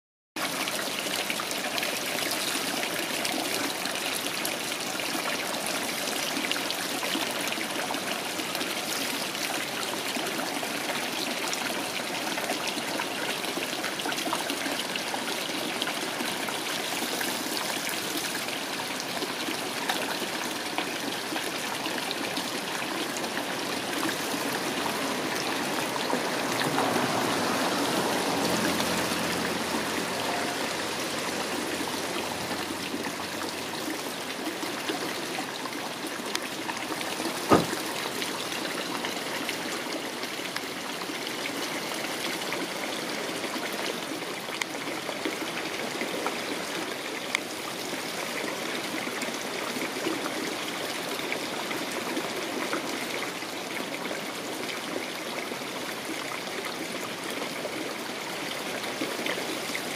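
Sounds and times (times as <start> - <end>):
water running from pipes: 0.4 - 54.0
water splashing on metal grating: 37.1 - 38.2.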